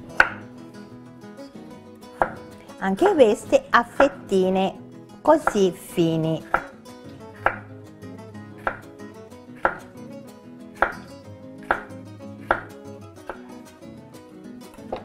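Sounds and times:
soft background music: 0.0s - 15.0s
knife knocking on wooden board: 2.2s - 2.5s, 9.6s - 9.9s, 11.7s - 11.9s, 12.5s - 12.7s.

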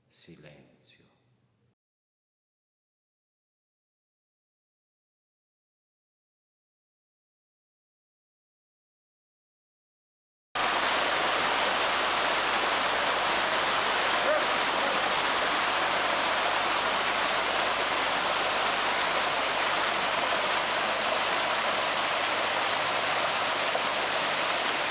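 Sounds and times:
stream splashing over rocks: 10.6s - 24.9s.

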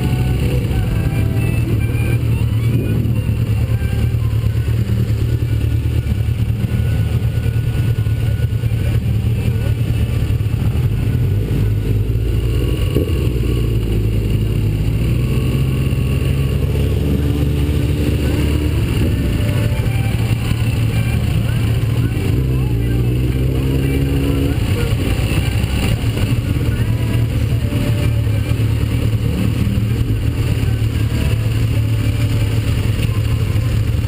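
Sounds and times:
motorcycle engine running: 0.0s - 34.0s
other motorcycles: 0.0s - 34.0s.

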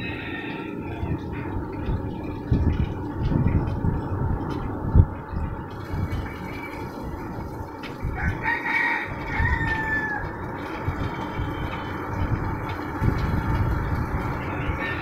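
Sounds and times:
rooster crowing: 0.0s - 1.5s, 8.1s - 10.4s, 14.4s - 15.0s.

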